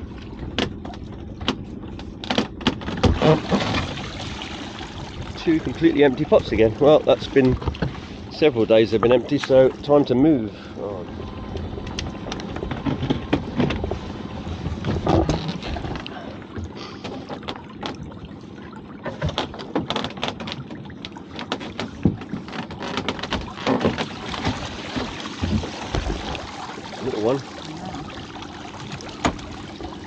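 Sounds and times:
steady low rumble: 0.0s - 17.0s
water splashing: 2.8s - 30.0s
pot and rope knocking on hull: 12.4s - 14.0s, 19.0s - 26.5s.

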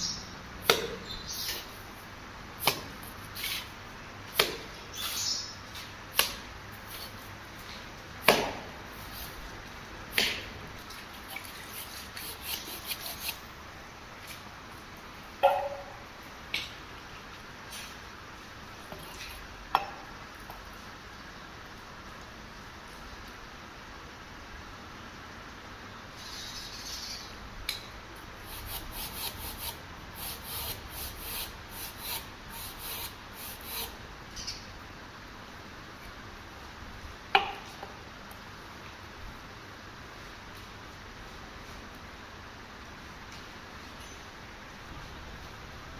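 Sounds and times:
hand rubbing on pipe: 11.2s - 13.4s, 28.5s - 34.0s
trowel scraping mortar: 11.2s - 13.4s, 28.5s - 34.0s.

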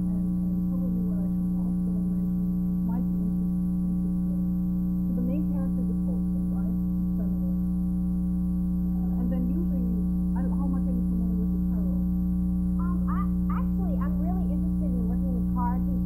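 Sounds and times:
electrical mains hum: 0.0s - 16.0s
faint woman's voice: 8.9s - 12.1s, 12.8s - 16.0s.

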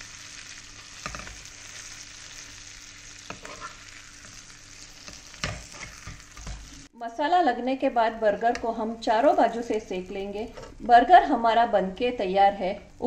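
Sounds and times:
butter sizzling in a pan: 0.0s - 6.9s.

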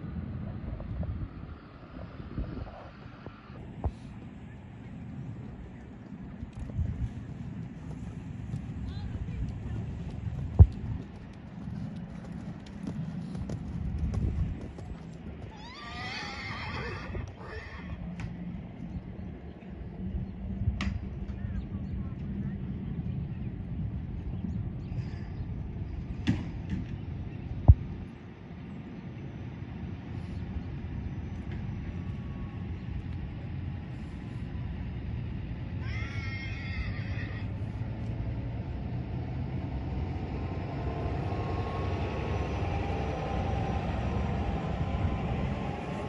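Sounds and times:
low rumbling background noise: 0.0s - 46.0s
hoofbeats on sand: 6.5s - 15.6s
horse whinnying: 15.5s - 18.0s, 35.9s - 37.5s.

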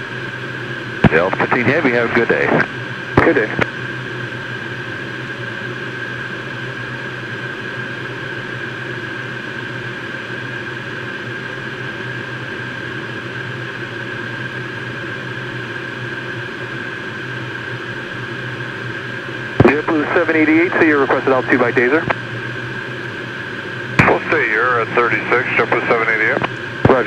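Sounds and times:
jet engines and airflow rushing: 0.0s - 5.3s, 16.5s - 27.0s
high engine whine: 0.0s - 27.0s
low hum: 19.5s - 27.0s.

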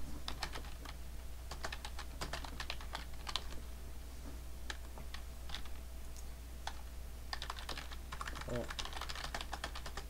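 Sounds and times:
typing on computer keyboard: 0.3s - 3.6s, 4.7s - 5.7s, 6.7s - 10.0s.

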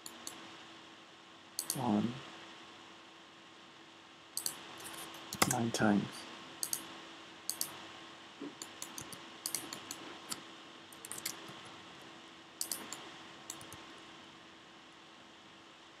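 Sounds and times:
faint steady hum and hiss: 0.0s - 16.0s
mouse and keyboard clicks: 1.6s - 1.8s, 4.4s - 5.6s, 6.6s - 6.9s, 7.5s - 7.8s, 8.6s - 10.4s, 11.0s - 11.6s, 12.6s - 13.8s.

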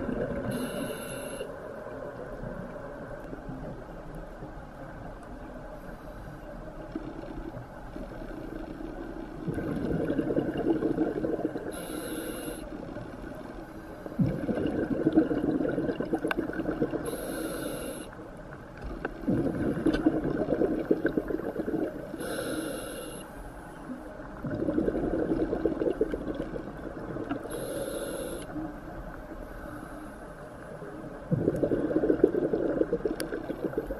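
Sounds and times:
regulator inhale hiss: 0.4s - 1.7s, 11.6s - 12.8s, 17.0s - 18.2s, 22.1s - 23.7s, 27.4s - 28.6s, 29.5s - 30.5s
exhaled bubbles rushing: 9.4s - 11.7s, 14.2s - 17.0s, 19.2s - 22.1s, 24.4s - 27.4s, 31.3s - 33.9s.

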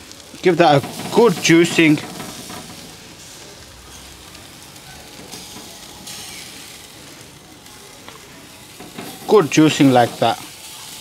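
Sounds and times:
chicken sizzling on a grill: 0.0s - 11.0s.

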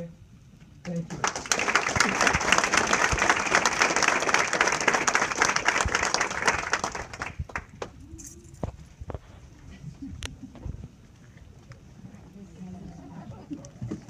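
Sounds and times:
audience applauding: 1.0s - 8.0s.

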